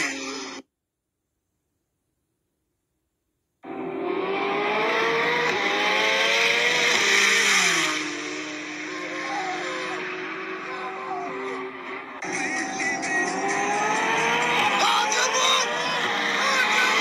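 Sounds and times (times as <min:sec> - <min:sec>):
racing car engines at full throttle: 0:03.6 - 0:17.0.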